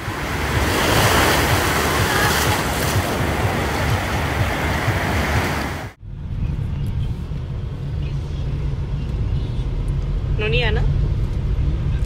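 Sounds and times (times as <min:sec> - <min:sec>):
ocean surf breaking: 0:00.0 - 0:06.0.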